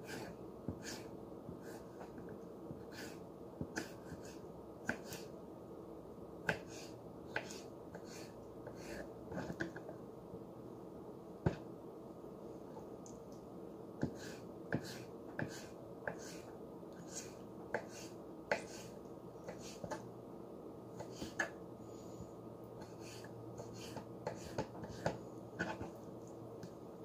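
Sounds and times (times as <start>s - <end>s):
low background hum: 0.0s - 27.0s.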